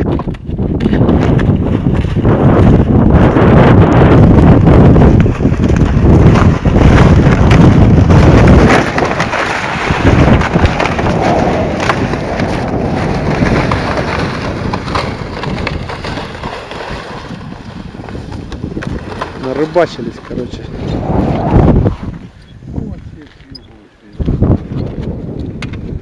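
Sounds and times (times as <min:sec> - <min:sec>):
wind buffeting microphone: 0:00.0 - 0:26.0
crackles: 0:04.5 - 0:23.8.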